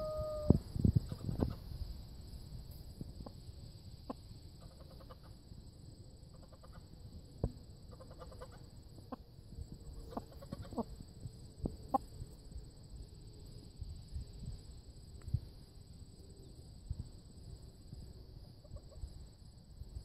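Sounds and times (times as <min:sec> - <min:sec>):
chickens clucking: 0:10.0 - 0:10.9.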